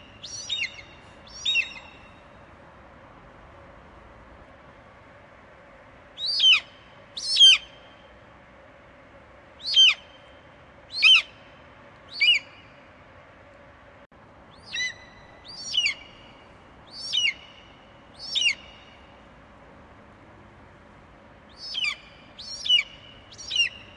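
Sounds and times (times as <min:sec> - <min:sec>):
faint steady hiss: 0:00.0 - 0:23.9
eagle calling: 0:00.2 - 0:02.1, 0:06.2 - 0:07.8, 0:09.6 - 0:10.2, 0:10.9 - 0:11.4, 0:12.1 - 0:12.7, 0:14.5 - 0:16.3, 0:16.9 - 0:17.6, 0:18.2 - 0:19.0, 0:21.5 - 0:23.9.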